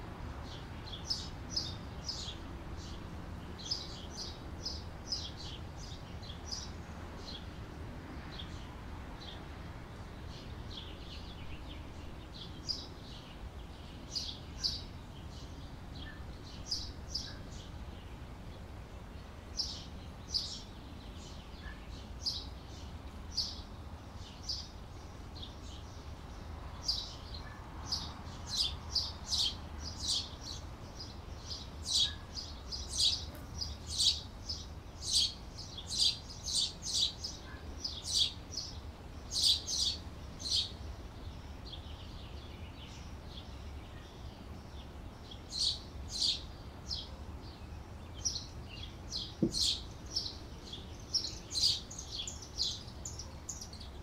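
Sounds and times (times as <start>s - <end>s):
canaries chirping: 27.9s - 40.8s, 48.2s - 54.0s.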